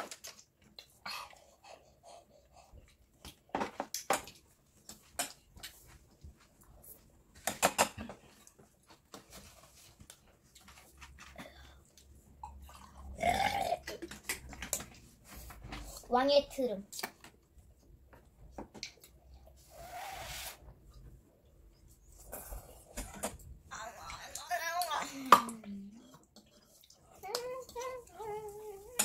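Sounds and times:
loud human burp: 0:13.1 - 0:14.0
chopsticks and spoons in bowls: 0:24.2 - 0:29.0.

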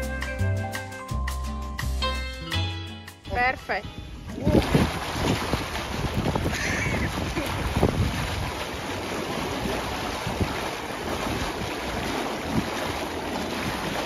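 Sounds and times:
water jets rushing and splashing: 0:04.3 - 0:14.0.

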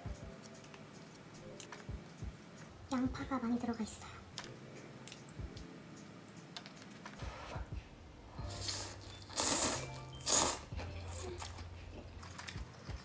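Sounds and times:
noodles slurped: 0:08.6 - 0:11.6.

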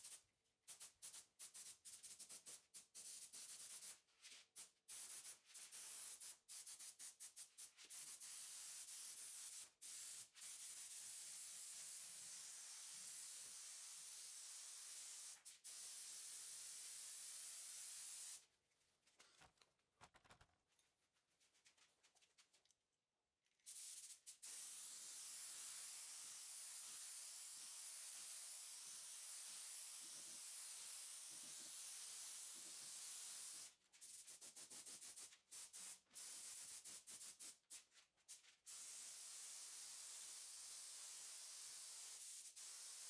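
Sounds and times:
paint spray gun hissing: 0:38.7 - 0:43.0.

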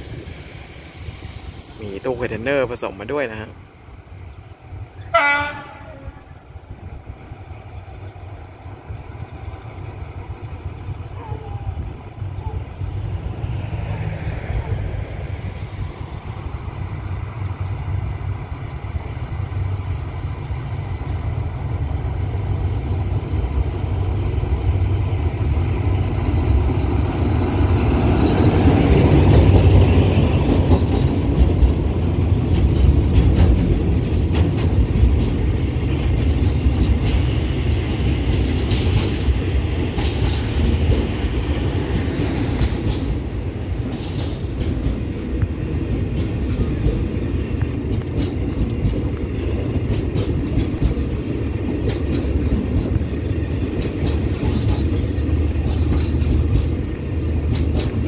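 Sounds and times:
diesel locomotive engine: 0:00.0 - 0:58.0
train wheels clicking: 0:16.8 - 0:58.0.

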